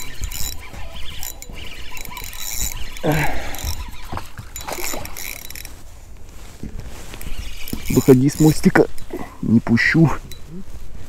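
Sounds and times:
fishing reel ratcheting and clicking: 0.0 - 5.7, 7.1 - 9.1.

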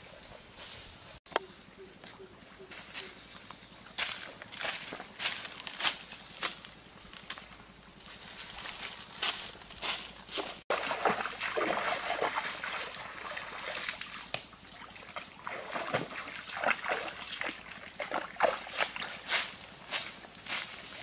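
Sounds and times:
water splashing and sloshing: 8.4 - 20.3.

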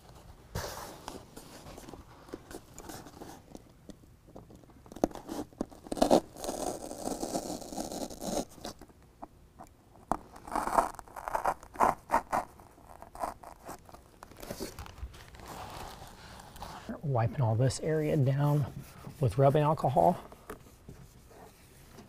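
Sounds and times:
utility knife cutting foam: 5.1 - 8.7.

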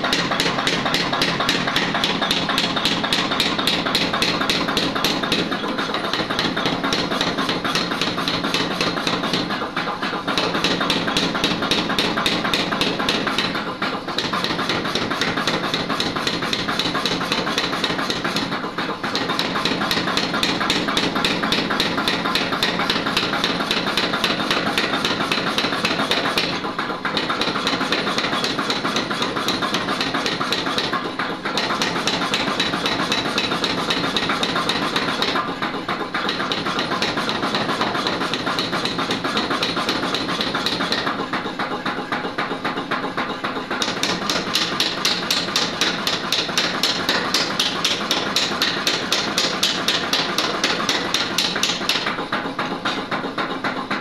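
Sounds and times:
power hammer pounding iron: 0.0 - 54.0.

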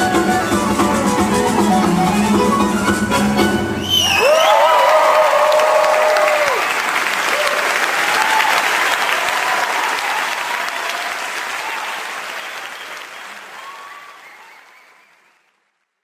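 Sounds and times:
audience applauding: 3.9 - 15.9.

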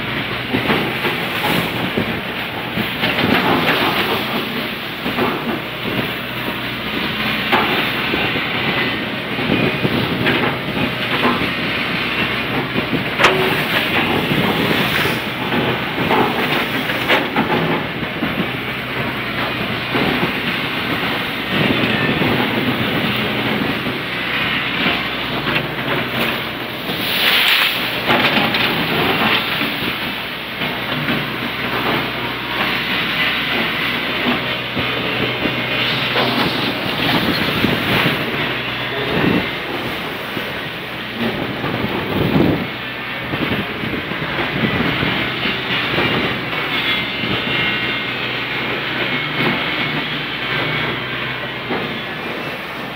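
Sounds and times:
diesel engine under load: 0.0 - 52.9
water churning and splashing: 0.0 - 52.9.

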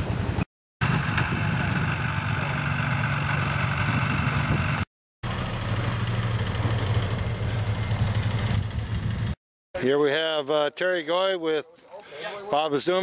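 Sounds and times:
low engine hum: 0.0 - 9.4
snowmobile engine: 0.0 - 9.4.

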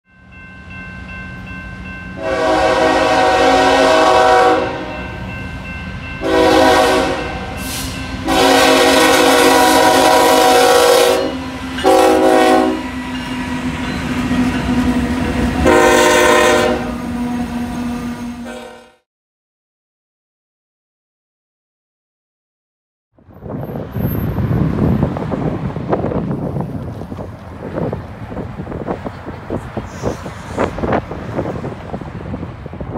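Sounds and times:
passing train hum: 0.1 - 19.0, 23.2 - 32.9
locomotive air horn blasts: 2.2 - 5.2, 6.2 - 12.9, 15.5 - 19.0.

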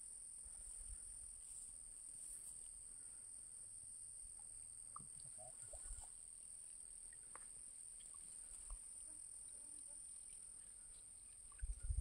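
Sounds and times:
faint ticks: 4.2 - 12.0.

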